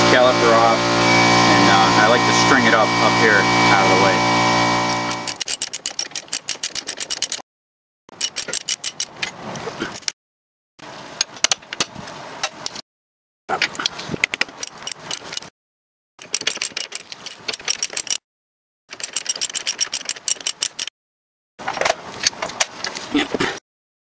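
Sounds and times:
hand ratchet clicking: 4.9s - 7.4s, 8.1s - 9.2s, 13.8s - 15.5s, 16.2s - 18.2s, 18.9s - 20.9s.

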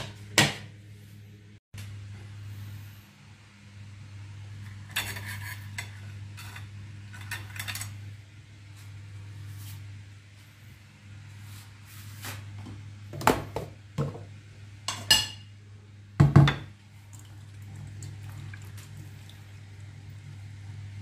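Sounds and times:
steady low hum: 0.0s - 21.0s
dishes clinking on counter: 14.9s - 15.5s.

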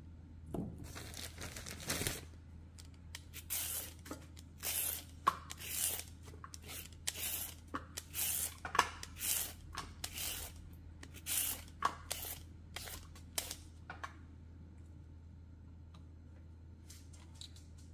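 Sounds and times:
vegetable peeler scraping carrot: 3.2s - 4.0s, 4.6s - 13.6s.

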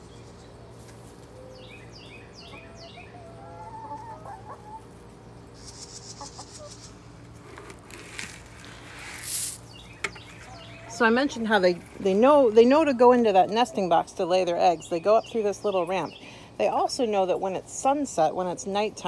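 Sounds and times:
rustle: 0.0s - 1.8s, 4.9s - 12.0s
hens clucking: 2.3s - 7.8s, 9.2s - 19.0s.

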